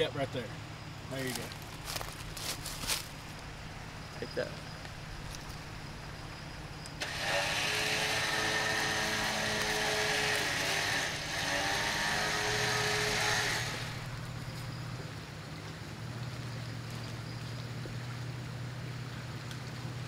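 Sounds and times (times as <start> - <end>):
electric winch whining under load: 7.0 - 14.2.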